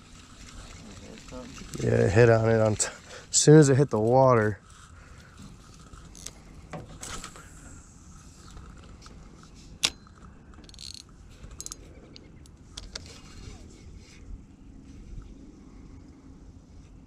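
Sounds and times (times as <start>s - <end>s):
fishing reel clicks and rattles: 5.4s - 6.4s, 9.8s - 13.1s.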